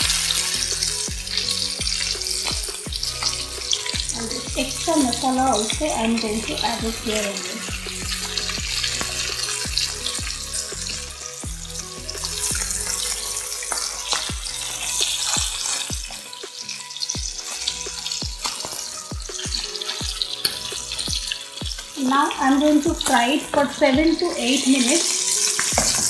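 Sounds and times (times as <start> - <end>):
meat sizzling in oil: 0.0 - 26.0
metal spoon in pan: 12.1 - 23.2.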